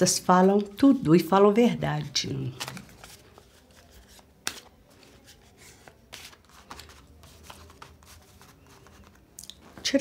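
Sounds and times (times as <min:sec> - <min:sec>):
cards being shuffled: 0:02.5 - 0:09.8.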